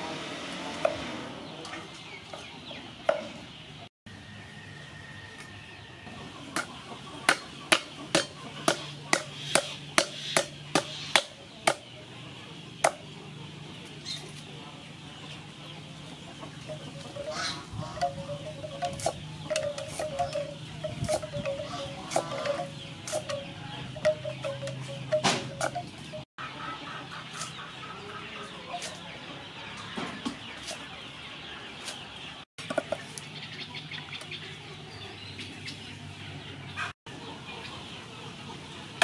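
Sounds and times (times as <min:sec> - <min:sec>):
hens clucking: 0:06.1 - 0:39.0
cleaver chopping on wooden block: 0:07.3 - 0:11.9.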